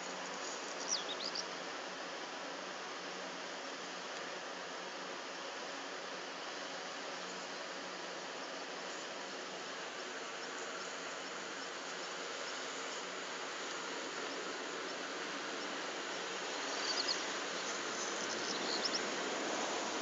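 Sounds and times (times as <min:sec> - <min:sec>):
steady outdoor hiss: 0:00.0 - 0:20.0
high insect chirps: 0:14.2 - 0:19.2.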